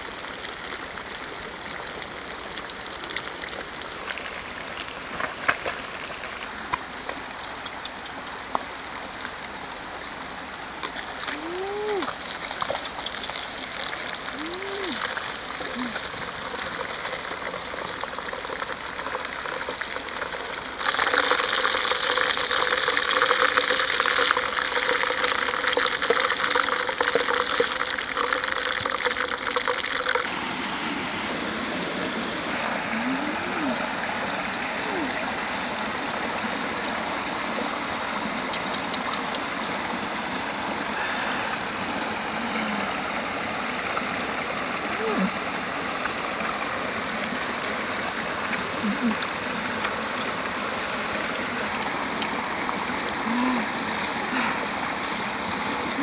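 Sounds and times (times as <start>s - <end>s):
fish deep-frying in oil: 0.0s - 9.8s, 10.8s - 30.4s
rocky stream rushing: 0.0s - 56.0s.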